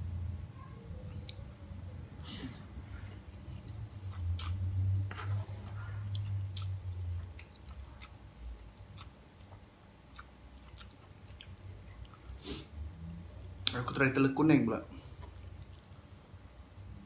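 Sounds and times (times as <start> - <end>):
chewing: 2.9 - 12.4.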